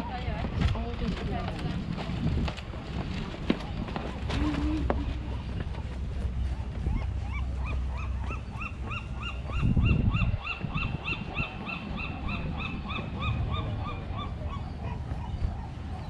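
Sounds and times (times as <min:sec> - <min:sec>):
gull calling: 0:04.2 - 0:05.6, 0:06.9 - 0:15.8.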